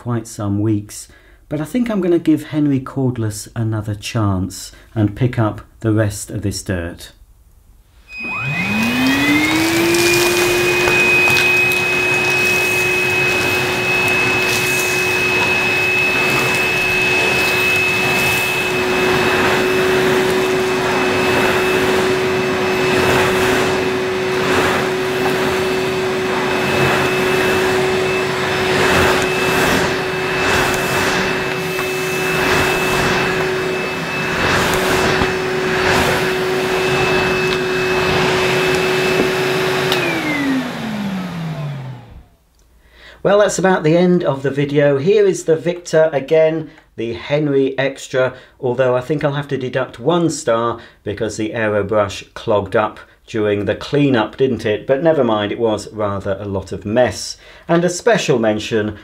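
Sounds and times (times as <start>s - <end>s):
vacuum cleaner motor whine: 8.1s - 42.4s
dirt crackling in vacuum hose: 8.2s - 41.8s.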